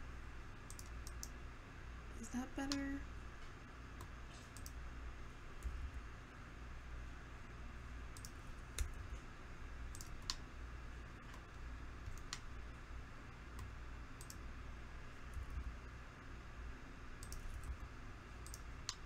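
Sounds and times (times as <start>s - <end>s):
low steady hum: 0.0s - 19.0s
computer mouse and keyboard clicks: 0.7s - 1.4s, 4.0s - 4.8s, 8.2s - 9.1s, 9.9s - 10.4s, 11.2s - 12.5s, 13.6s - 14.4s, 17.2s - 17.8s, 18.4s - 19.0s.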